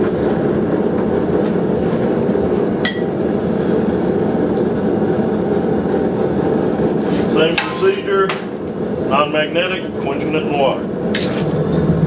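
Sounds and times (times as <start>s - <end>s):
forge burner roaring: 0.0s - 12.0s.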